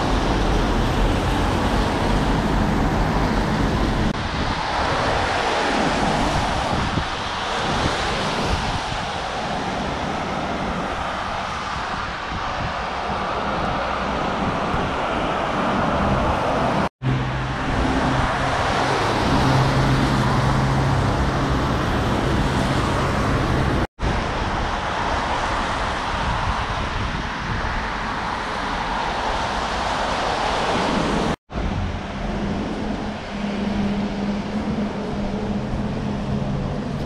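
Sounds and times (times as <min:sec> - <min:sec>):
vehicle engines running: 0:00.0 - 0:26.1, 0:27.8 - 0:37.0
tyres hissing on wet road: 0:00.0 - 0:37.0
low engine hum: 0:29.5 - 0:37.0.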